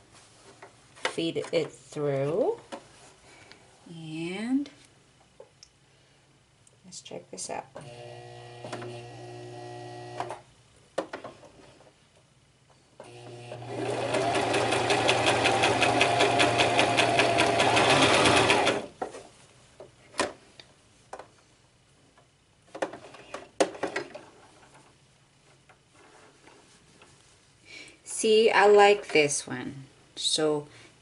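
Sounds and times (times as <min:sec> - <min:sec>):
sewing machine stitching: 0:13.0 - 0:18.9.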